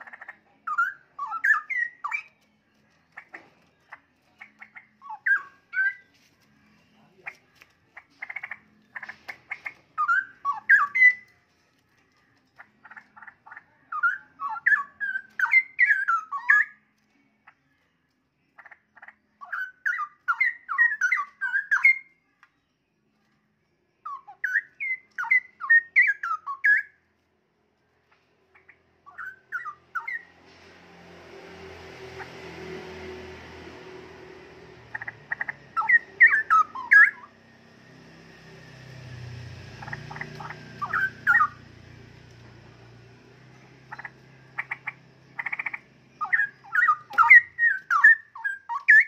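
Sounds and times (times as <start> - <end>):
bird chattering and whistling song: 0.0 - 2.5, 3.1 - 6.2, 7.0 - 11.3, 12.6 - 16.8, 18.5 - 22.1, 24.0 - 27.0, 28.5 - 30.3, 34.7 - 37.4, 39.7 - 41.8, 43.5 - 49.0.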